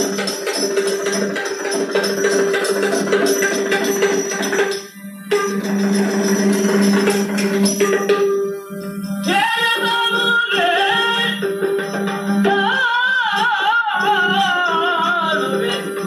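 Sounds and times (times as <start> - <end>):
jingling hand cymbals: 0.0 - 12.6
man singing: 9.3 - 11.6, 12.4 - 16.0.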